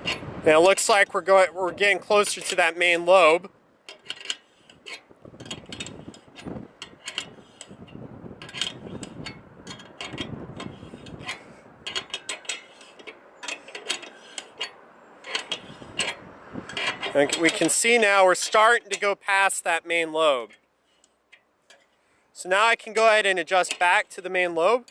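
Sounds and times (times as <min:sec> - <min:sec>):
metallic clicks and rattles: 0:01.7 - 0:19.2, 0:22.8 - 0:24.2.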